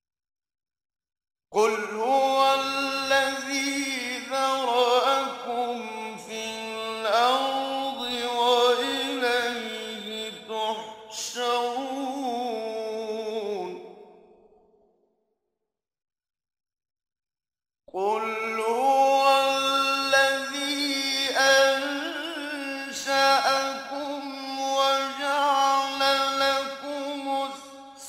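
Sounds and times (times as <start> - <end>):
man reciting melodically: 1.6 - 13.8, 17.9 - 28.0.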